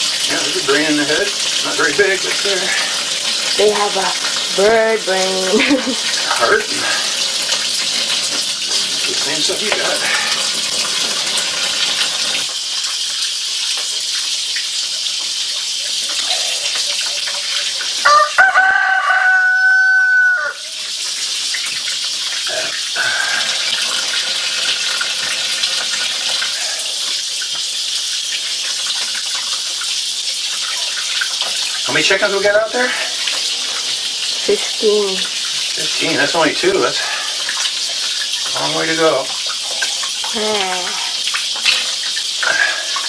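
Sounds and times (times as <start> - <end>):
tap water running into sink: 0.0 - 43.0
rooster crowing: 18.0 - 20.7.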